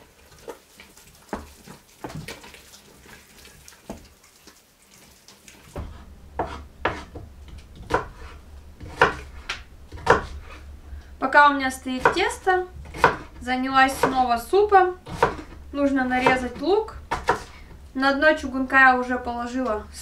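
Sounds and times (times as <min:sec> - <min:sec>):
low steady hum: 0:05.6 - 0:20.0
spatula scraping steel pot: 0:11.7 - 0:18.6.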